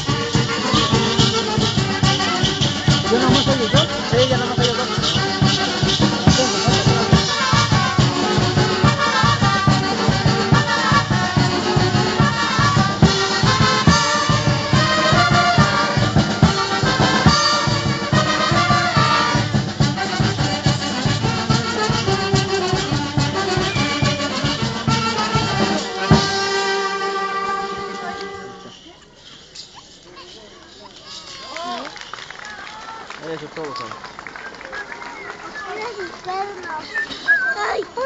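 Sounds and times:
steady drum beat: 0.0 - 28.6
brass band music: 0.0 - 28.9.

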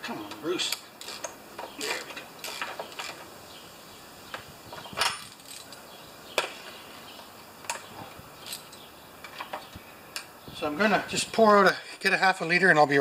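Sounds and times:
ratchet clicking on metal: 0.7 - 3.2, 8.4 - 8.8.

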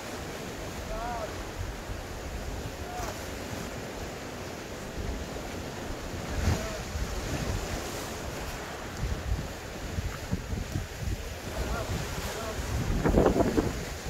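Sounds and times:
waves washing against rocks: 0.0 - 14.0
wind buffeting microphone: 5.0 - 14.0.

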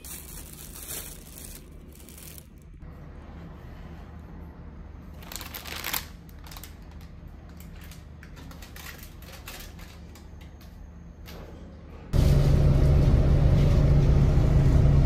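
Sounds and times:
small objects rustling: 0.0 - 2.8
low hum: 12.0 - 15.0.

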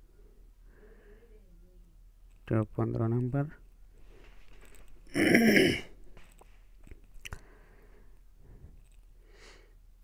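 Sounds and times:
low electrical hum: 0.0 - 10.0
soft rustle: 3.3 - 5.1, 6.0 - 9.2.

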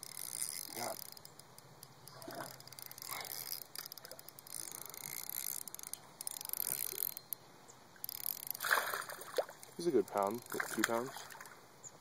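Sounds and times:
fishing reel clicking: 0.0 - 7.4, 8.0 - 8.7, 9.8 - 11.1.

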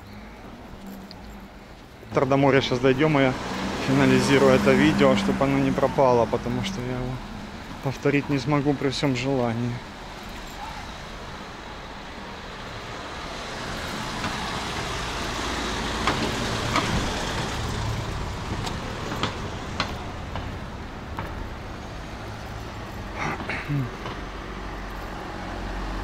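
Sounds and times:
vehicle engine passing: 0.0 - 26.0.

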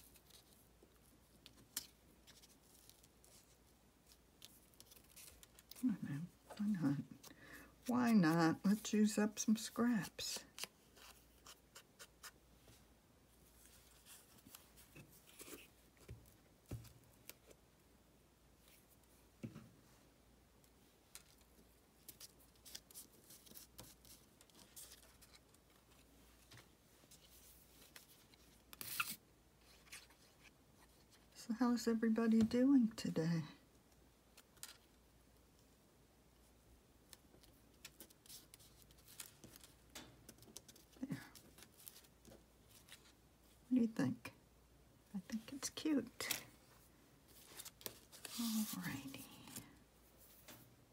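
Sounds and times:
paper rustling: 0.0 - 5.8, 47.3 - 49.6.

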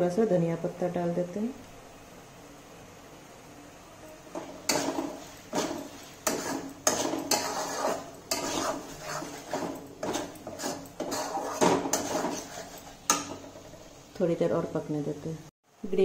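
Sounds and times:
metal spatula scraping pan: 4.0 - 14.0.

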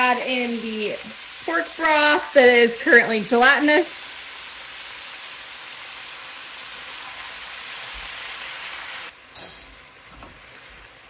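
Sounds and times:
food sizzling in a frying pan: 0.0 - 11.0
short clink: 9.4 - 9.9.

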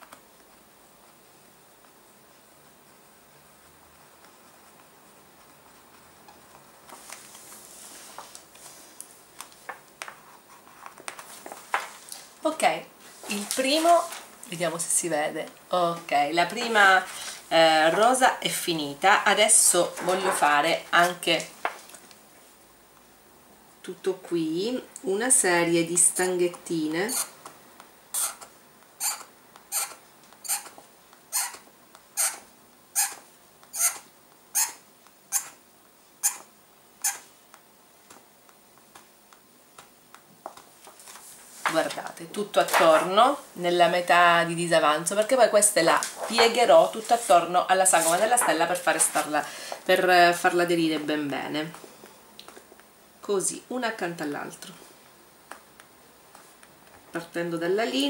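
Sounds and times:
stylus scratching on foil: 27.0 - 27.4, 28.2 - 31.6, 32.2 - 32.4, 33.0 - 35.6.

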